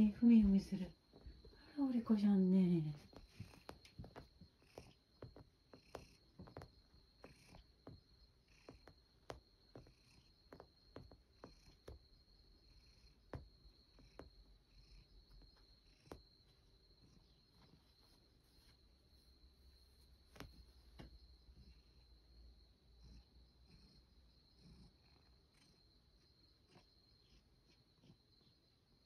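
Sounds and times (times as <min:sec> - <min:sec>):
cat claws kneading a fleece bed: 0:00.9 - 0:01.6, 0:02.9 - 0:21.8.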